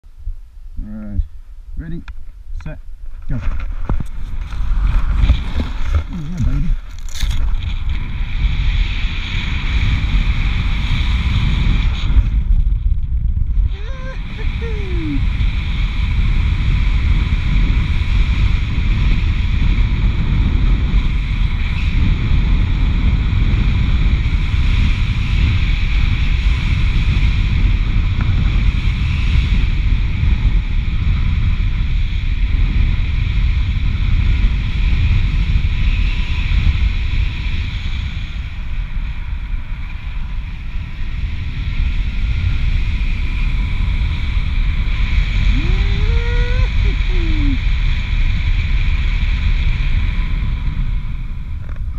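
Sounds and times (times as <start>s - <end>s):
wind buffeting microphone: 0.1s - 51.9s.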